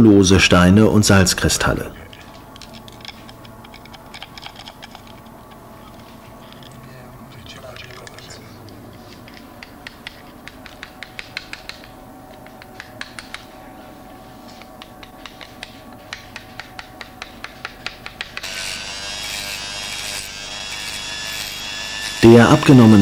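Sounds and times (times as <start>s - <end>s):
hammer tapping chisel on rock: 9.6s - 13.5s, 14.8s - 18.5s
electric hand tool whining: 18.4s - 23.0s.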